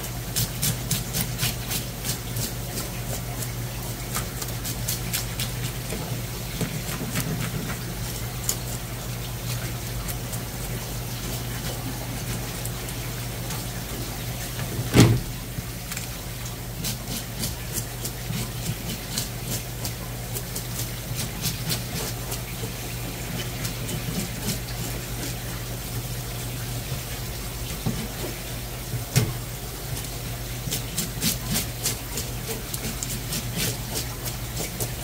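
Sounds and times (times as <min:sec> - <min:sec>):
tap water running: 0:00.0 - 0:35.0
loud thump: 0:14.9 - 0:15.4.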